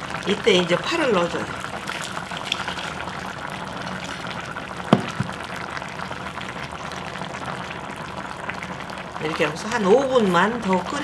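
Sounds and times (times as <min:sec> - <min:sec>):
stew bubbling in a pot: 0:00.0 - 0:11.0
sharp knock: 0:04.9 - 0:05.4.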